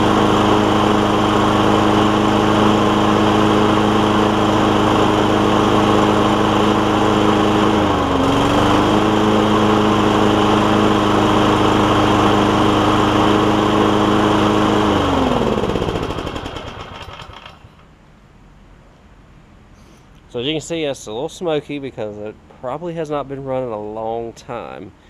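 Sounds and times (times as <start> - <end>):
lawn mower engine running: 0.0 - 17.9.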